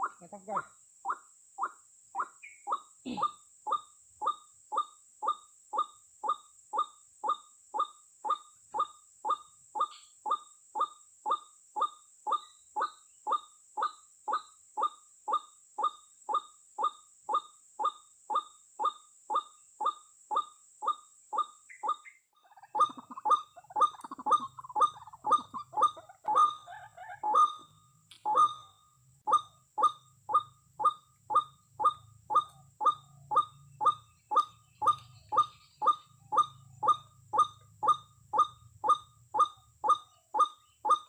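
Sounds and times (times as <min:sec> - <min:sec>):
waterhen calls: 0:21.8 - 0:41.0.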